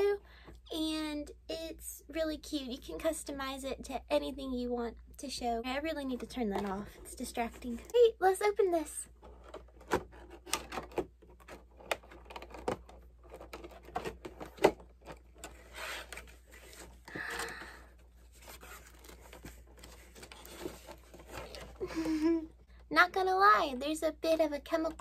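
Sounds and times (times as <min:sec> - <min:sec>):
packaging rustling and sliding: 0:09.2 - 0:21.9.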